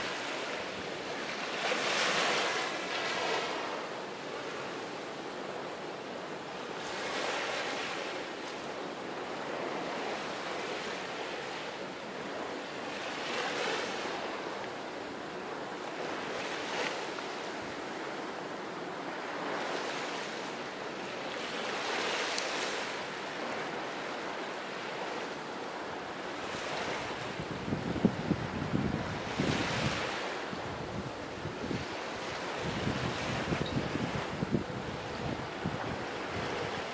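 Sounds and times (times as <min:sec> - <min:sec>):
ocean waves washing onto beach: 0:00.0 - 0:36.9
wind buffeting microphone: 0:27.1 - 0:36.9.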